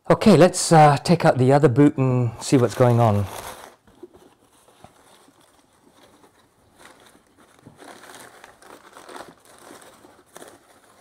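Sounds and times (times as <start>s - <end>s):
cloth bag rustling: 2.4s - 11.0s
tissue paper rustling: 2.4s - 11.0s.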